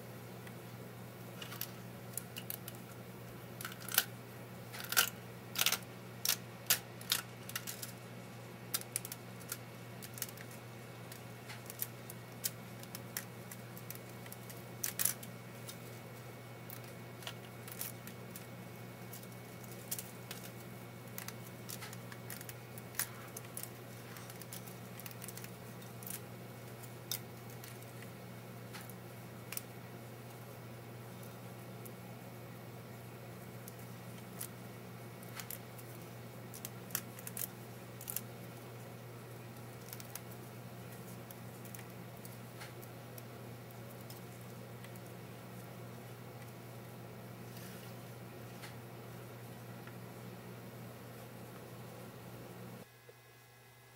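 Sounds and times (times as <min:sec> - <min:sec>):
steady low hum: 0:00.0 - 0:53.9
plastic clicks and cracks: 0:03.6 - 0:04.1, 0:04.7 - 0:08.0, 0:08.7 - 0:15.8, 0:16.7 - 0:18.5, 0:19.1 - 0:28.1, 0:35.2 - 0:38.3, 0:39.8 - 0:45.1.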